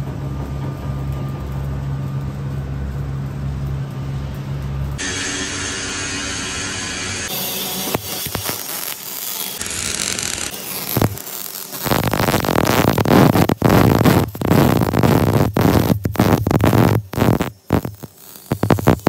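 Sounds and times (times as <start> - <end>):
welding arc crackling and sizzling: 0.0 - 19.0.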